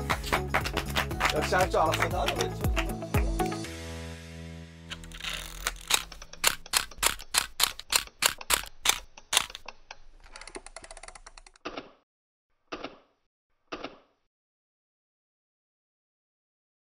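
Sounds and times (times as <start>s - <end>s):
fast fine rattle: 4.9s - 11.6s
sharp mechanical clicks: 4.9s - 12.0s.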